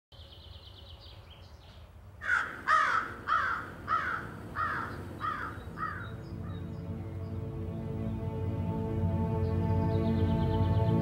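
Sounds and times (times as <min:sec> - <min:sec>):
bird cawing: 0:02.2 - 0:06.6.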